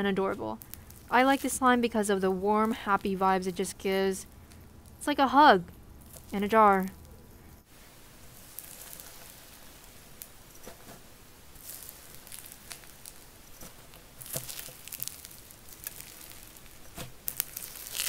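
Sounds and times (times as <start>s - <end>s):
fingers crackling crunchy slime: 0.6s - 5.2s, 8.4s - 9.6s, 11.6s - 18.0s.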